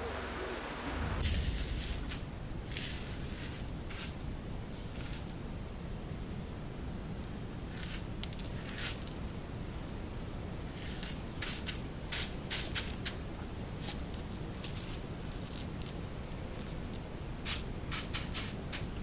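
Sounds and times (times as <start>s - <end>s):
steady low hum: 0.0s - 8.2s
dry cereal rustling and crackling: 1.2s - 4.3s, 13.8s - 19.0s.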